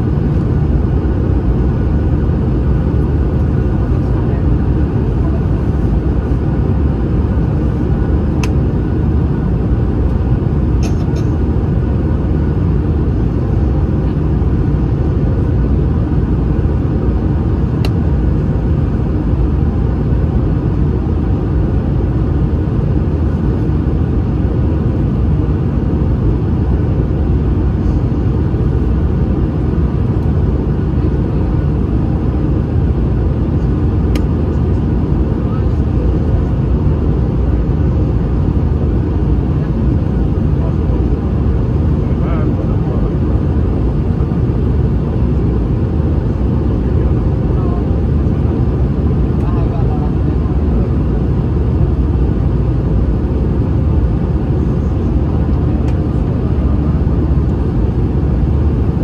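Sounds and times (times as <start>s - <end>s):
aircraft cabin engine rumble: 0.0s - 59.0s.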